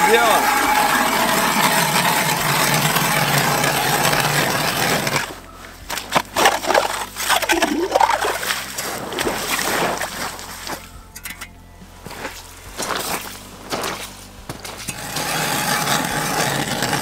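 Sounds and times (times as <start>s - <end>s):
ice auger grinding through ice: 0.0s - 10.9s, 12.0s - 17.0s
slush sloshing: 0.0s - 10.9s
crunching and scraping ice: 0.0s - 17.0s.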